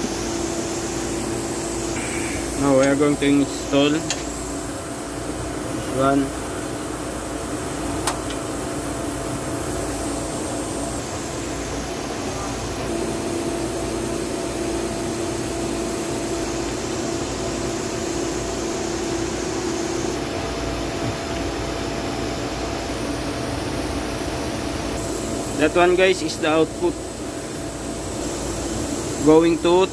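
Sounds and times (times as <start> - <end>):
machinery humming drone: 0.0 - 29.9
sharp click: 8.0 - 8.4.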